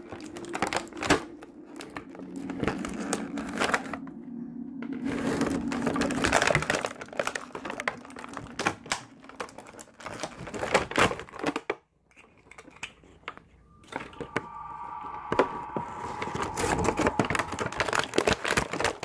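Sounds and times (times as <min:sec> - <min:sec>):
low steady hum: 0:00.0 - 0:10.1, 0:13.4 - 0:18.6
packaging crinkling and rustling: 0:05.2 - 0:13.2.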